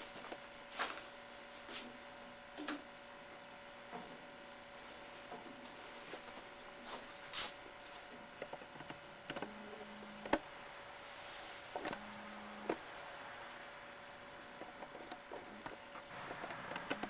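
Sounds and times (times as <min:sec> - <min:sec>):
low buzz: 0:09.0 - 0:17.0.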